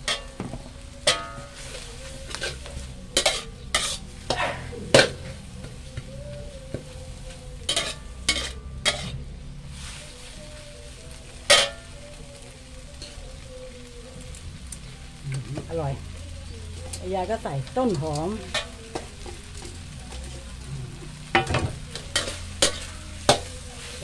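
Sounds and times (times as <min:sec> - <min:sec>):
metal ladle scraping a wok: 0:00.0 - 0:05.9, 0:07.3 - 0:10.3, 0:11.4 - 0:12.0, 0:21.0 - 0:24.0
food sizzling: 0:00.0 - 0:24.0.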